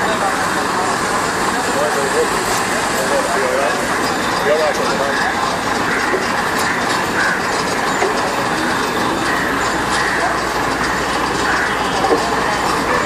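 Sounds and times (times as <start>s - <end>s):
heavy diesel machinery engine: 0.0s - 13.0s
clicks and clanks: 4.0s - 13.0s.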